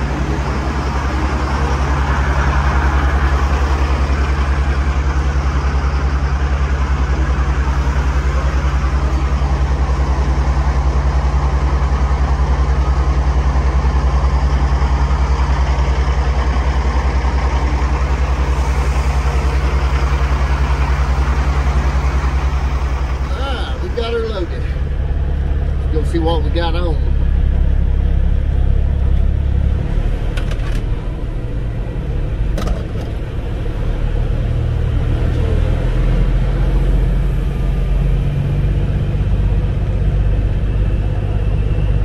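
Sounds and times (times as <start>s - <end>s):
diesel truck engine idling: 0.0s - 42.0s.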